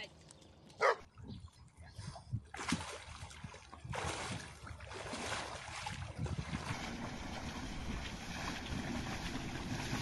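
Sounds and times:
water splashing and sloshing: 0.0s - 10.0s.

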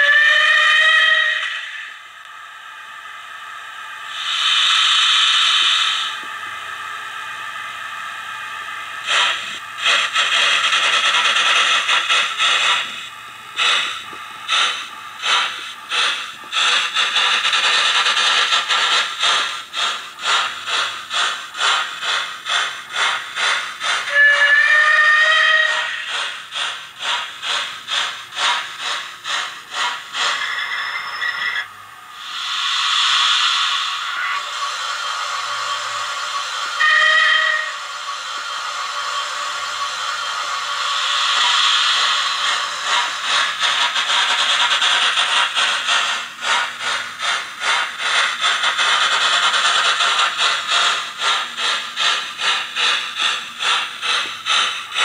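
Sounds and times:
train whistle: 0.0s - 2.0s, 24.0s - 26.0s, 33.1s - 34.5s, 36.8s - 37.9s
steam hiss: 0.0s - 7.0s, 7.8s - 55.0s
steam exhaust chuffs: 0.0s - 31.5s, 32.1s - 55.0s.

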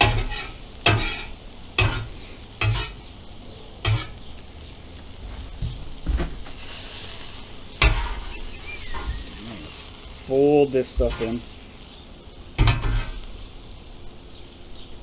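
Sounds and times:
metal spatula scraping griddle: 0.0s - 3.0s, 3.8s - 4.2s, 6.5s - 10.3s, 10.9s - 11.6s, 12.6s - 13.3s
food sizzling: 0.0s - 15.0s.

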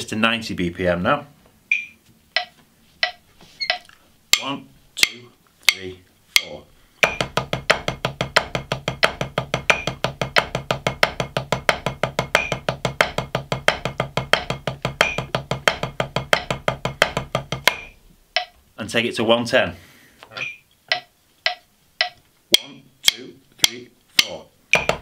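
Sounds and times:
drumstick clicks: 1.7s - 7.8s, 17.6s - 18.6s, 20.4s - 25.0s.

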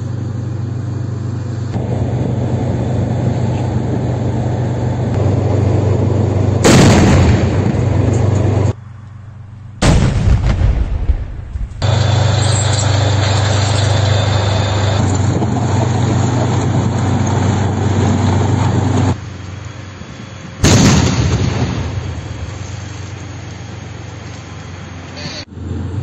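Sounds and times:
tracked vehicle engine running: 0.0s - 26.0s
loud explosion: 6.6s - 8.2s, 9.8s - 15.0s, 20.6s - 22.6s.

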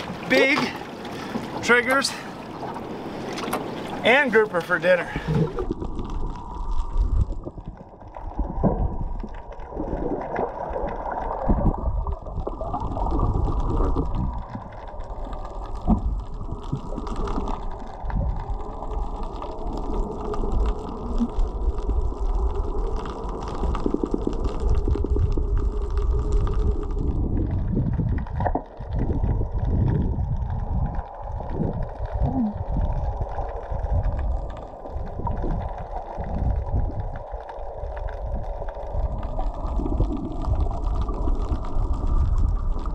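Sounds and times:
water sloshing underwater: 0.0s - 42.9s.

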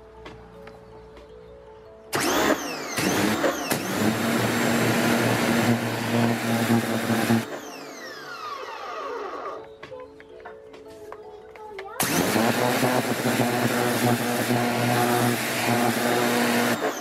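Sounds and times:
pressure washer motor hum: 2.1s - 9.7s, 12.0s - 17.0s
motor winding down whine: 2.2s - 9.7s, 12.0s - 17.0s.

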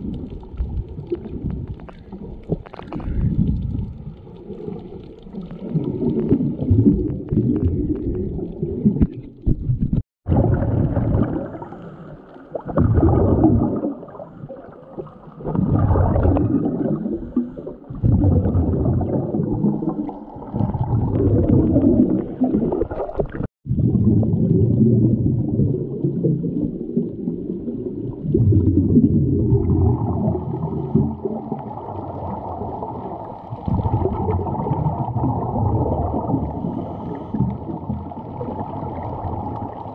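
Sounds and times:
muffled underwater rumbling: 0.0s - 39.9s.

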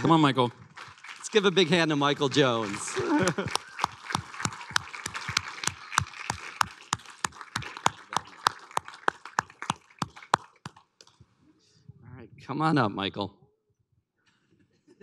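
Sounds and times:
audience applauding: 0.0s - 11.0s
close sharp hand claps: 0.0s - 11.2s.

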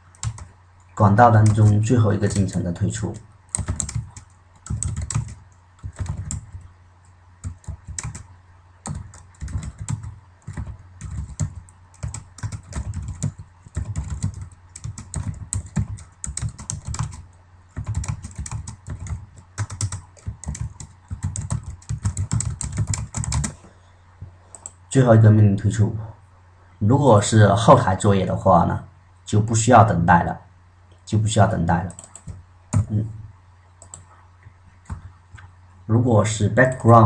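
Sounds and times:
low steady hum: 0.0s - 37.0s
keyboard typing clicks: 0.1s - 0.5s, 3.5s - 23.6s, 31.9s - 32.9s, 33.8s - 34.1s.

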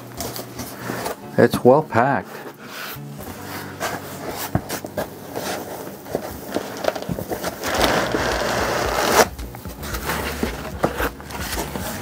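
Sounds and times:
handling taps and rustles: 3.8s - 8.0s
cardboard box scraping on foam: 7.4s - 12.0s.

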